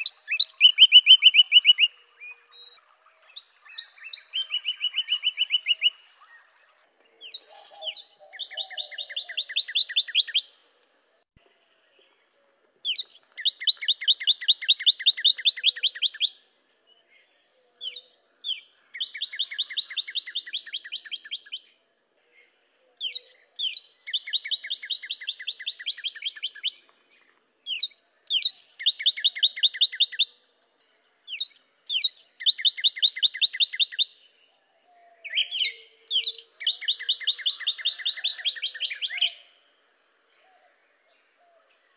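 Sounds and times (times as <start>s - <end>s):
bird singing whistled phrases: 0.0s - 6.5s, 7.2s - 10.5s, 12.9s - 16.4s, 17.8s - 21.7s, 23.0s - 26.8s, 27.7s - 30.4s, 31.3s - 34.3s, 35.2s - 39.5s.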